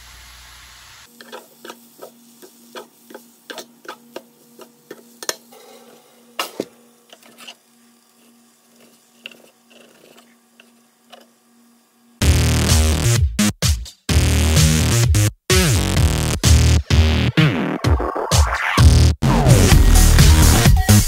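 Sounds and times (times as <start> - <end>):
tongs scraping frying pan: 1.1 - 5.5, 7.1 - 11.3
loud electronic music: 12.2 - 21.0.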